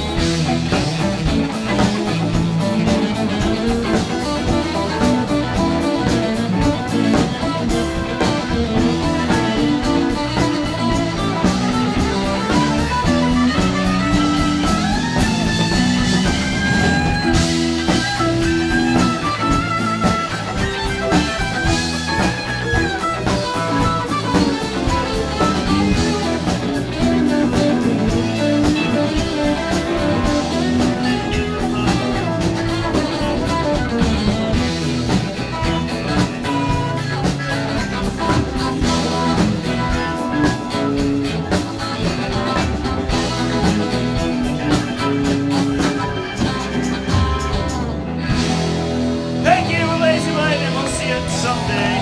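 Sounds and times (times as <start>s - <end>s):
live rock band playing: 0.0s - 52.0s.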